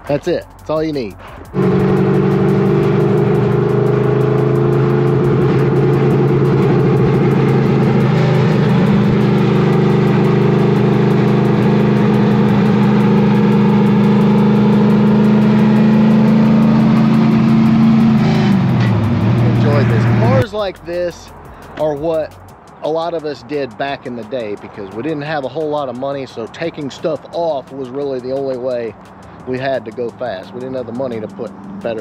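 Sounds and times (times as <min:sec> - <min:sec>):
car engine exhaust drone: 0:00.0 - 0:20.7.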